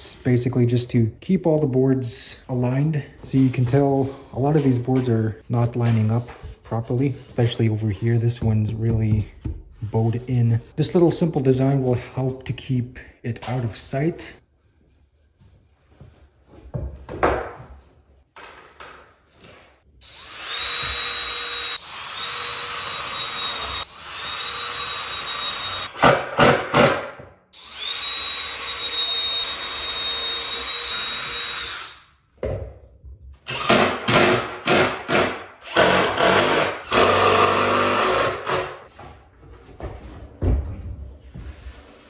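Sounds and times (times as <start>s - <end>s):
cordless drill driving screws: 20.1s - 26.1s, 27.6s - 32.0s, 33.5s - 38.7s.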